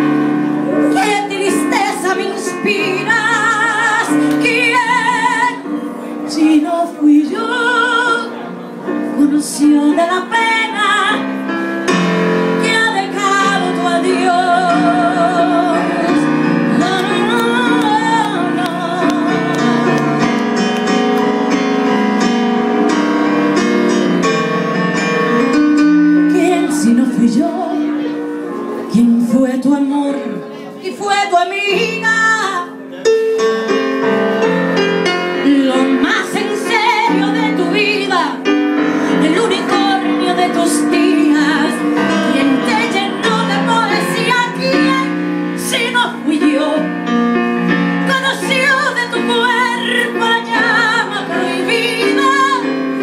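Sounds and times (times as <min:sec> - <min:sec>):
keyboard piano: 0:00.0 - 0:53.0
woman singing a slow ballad: 0:00.8 - 0:05.6, 0:06.3 - 0:08.4, 0:09.2 - 0:11.2, 0:12.6 - 0:19.9, 0:26.3 - 0:28.1, 0:28.9 - 0:32.7, 0:35.4 - 0:38.5, 0:39.1 - 0:46.9, 0:48.0 - 0:52.8.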